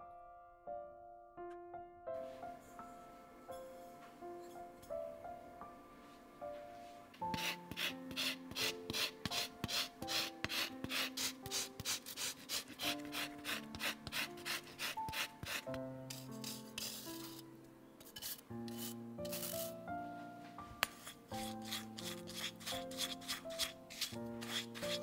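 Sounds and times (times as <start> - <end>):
grater rasping orange peel: 7.4 - 17.4, 18.0 - 19.8, 20.9 - 25.0.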